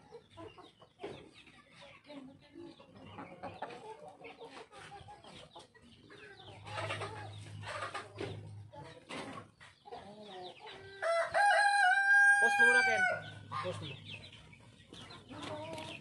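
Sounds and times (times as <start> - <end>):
chickens clucking: 0.0 - 16.0
rooster crowing: 11.0 - 13.4.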